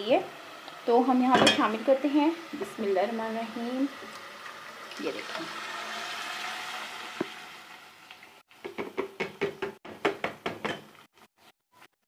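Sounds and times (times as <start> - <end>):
food hissing in hot pot: 3.7 - 7.6.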